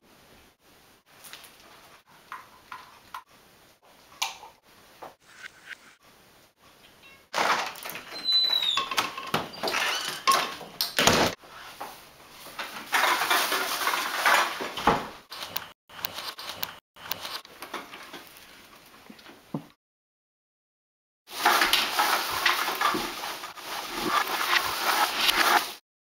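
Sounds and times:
rustling: 11.4s - 14.8s, 21.3s - 25.8s.

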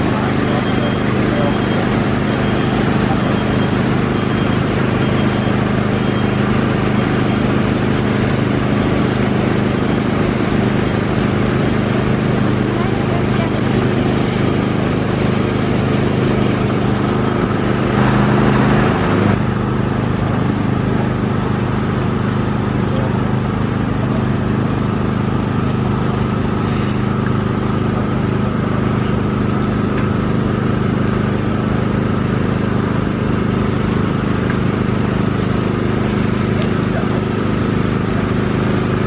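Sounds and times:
diesel engine running: 0.0s - 39.0s.

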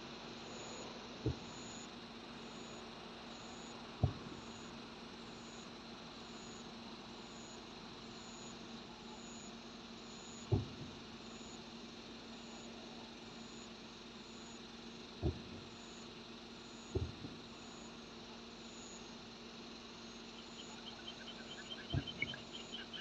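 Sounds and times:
faint insect chirp: 0.0s - 23.0s.

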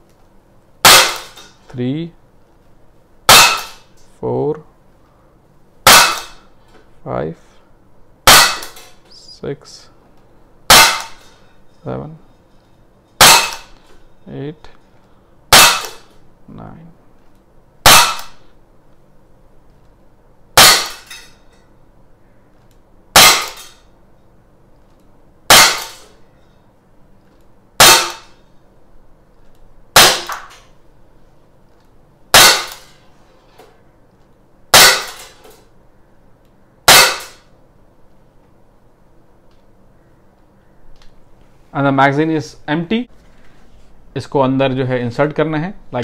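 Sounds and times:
air pistol shots popping: 0.8s - 1.5s, 3.3s - 3.9s, 5.8s - 6.5s, 8.3s - 8.9s, 10.7s - 11.3s, 13.2s - 13.8s, 15.5s - 16.2s, 17.8s - 18.5s, 20.6s - 21.2s, 23.1s - 23.7s, 25.5s - 26.1s, 27.8s - 28.4s, 30.0s - 30.6s, 32.3s - 33.0s, 34.7s - 35.3s, 36.9s - 37.5s.

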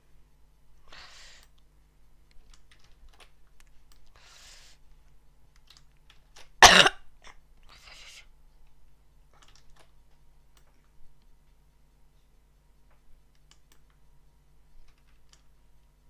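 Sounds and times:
soft breathy hisses: 0.8s - 1.5s, 4.1s - 4.9s, 7.7s - 8.3s
computer mouse clicks: 1.4s - 1.7s, 2.3s - 4.2s, 5.5s - 6.6s, 9.4s - 11.3s, 12.9s - 14.1s, 14.8s - 15.6s
person coughing: 6.6s - 7.4s.

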